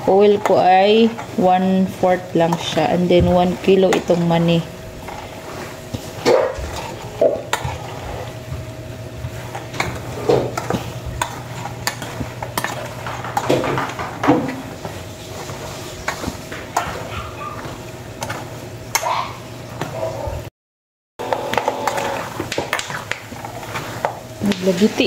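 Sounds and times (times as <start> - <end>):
peanuts sizzling in oil: 21.5 - 25.0.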